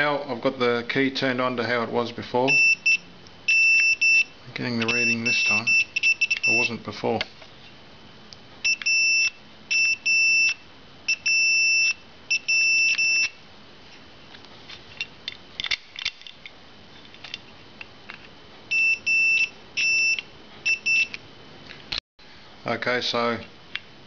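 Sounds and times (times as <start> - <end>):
multimeter continuity beeps: 2.5 - 6.8, 8.6 - 13.4, 18.7 - 21.2.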